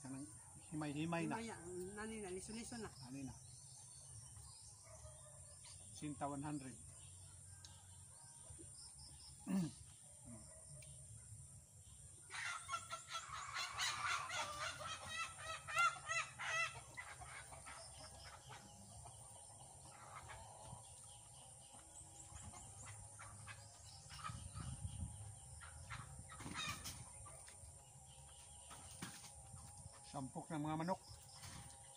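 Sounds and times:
chickens squawking: 12.3 - 27.7.

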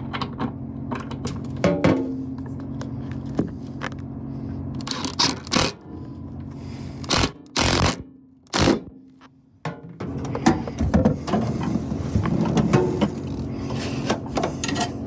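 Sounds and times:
steady low hum: 0.0 - 15.0
power drill driving screws: 4.8 - 5.8, 7.0 - 8.9.

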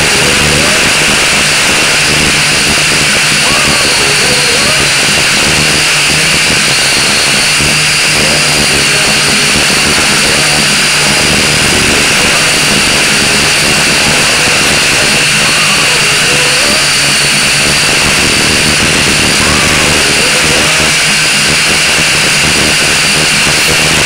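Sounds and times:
quadcopter propellers whining: 0.0 - 24.0.

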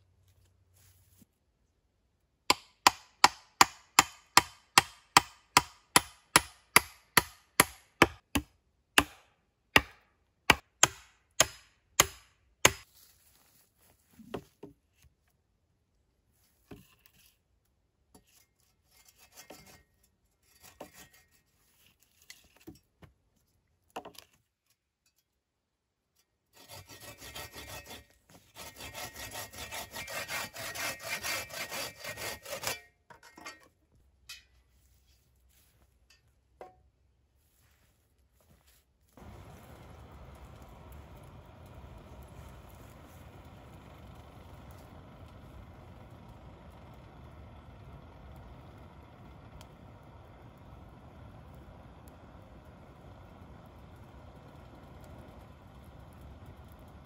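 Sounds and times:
sharp blows on wood: 2.5 - 12.9
hand saw cutting wood: 9.8 - 12.8, 20.5 - 21.6, 26.5 - 33.0.

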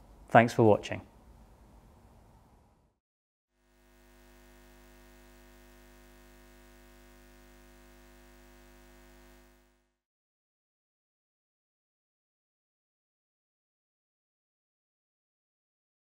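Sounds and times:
faint electric hum: 3.6 - 10.0.

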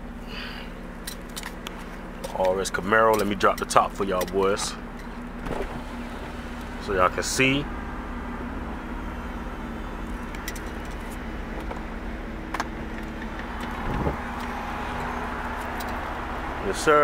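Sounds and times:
car engine idling: 0.0 - 17.0.

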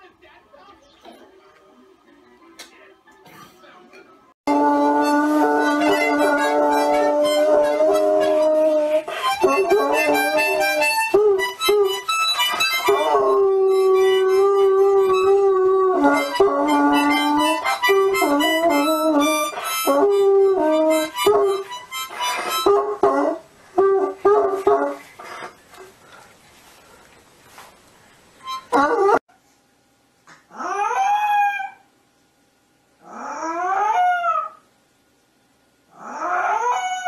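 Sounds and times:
dog howling: 4.5 - 12.0, 12.8 - 21.6, 22.6 - 25.0, 28.7 - 29.2, 30.5 - 31.8, 33.0 - 34.6, 36.0 - 37.0
child playing harmonica: 4.5 - 23.0, 28.4 - 28.8.

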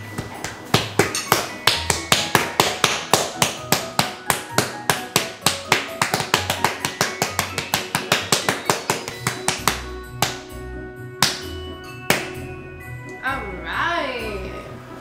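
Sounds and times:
background music with bass: 0.0 - 15.0
hands slapping dough on board: 0.2 - 10.5, 11.2 - 11.5, 12.1 - 12.4.

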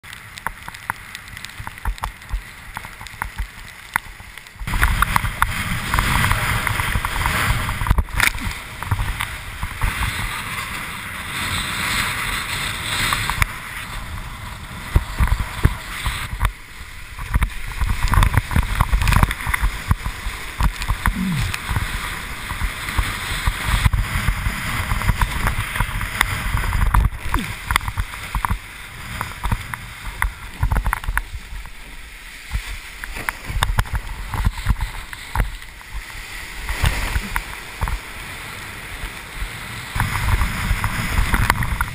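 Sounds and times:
water rushing and spray hissing: 0.0 - 41.9
wind buffeting microphone: 4.6 - 31.8.

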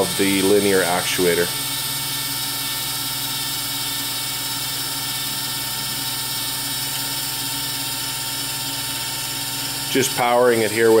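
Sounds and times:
electric motor and gearbox humming: 0.0 - 11.0.

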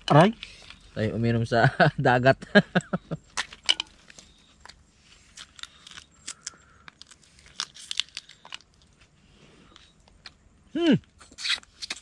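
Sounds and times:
crab shells cracking: 4.7 - 8.9.

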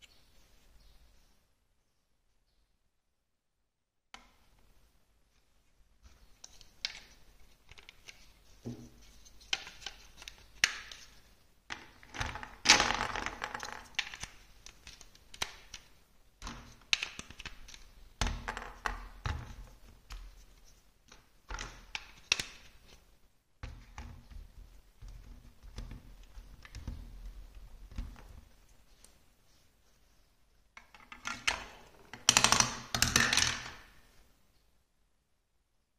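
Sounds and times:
plastic blocks clicking together: 11.8 - 19.7, 30.8 - 33.8.

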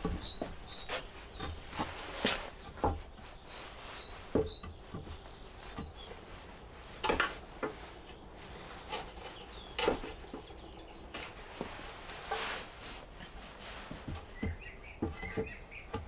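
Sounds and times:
wooden knocks and thuds: 0.0 - 3.2, 4.2 - 6.2, 7.0 - 7.8, 13.9 - 16.0
bird chirping: 0.0 - 11.5, 14.1 - 16.0.

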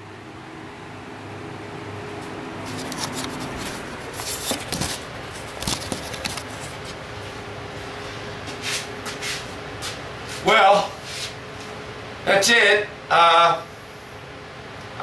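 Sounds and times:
steady background hum: 0.0 - 15.0
camera handling rustles and clicks: 2.7 - 7.0.

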